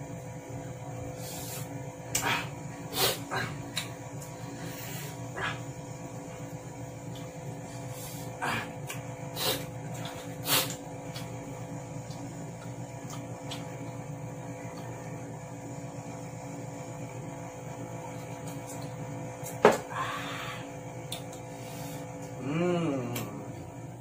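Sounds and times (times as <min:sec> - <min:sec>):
electrical mains hum: 0:00.0 - 0:24.0
breathy exhale: 0:19.9 - 0:20.8.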